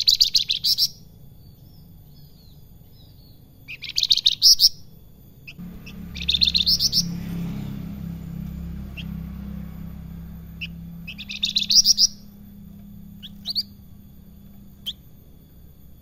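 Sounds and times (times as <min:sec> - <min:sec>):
songbird chirping and whistling: 0:00.0 - 0:04.9, 0:05.8 - 0:07.4, 0:10.6 - 0:15.2
low motorbike rumble: 0:05.6 - 0:16.0.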